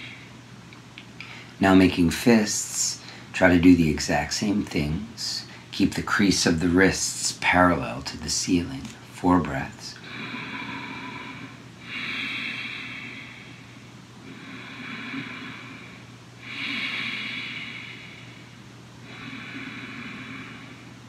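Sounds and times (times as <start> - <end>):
man breathing deeply: 0.0 - 0.4, 1.2 - 1.6, 10.0 - 21.0.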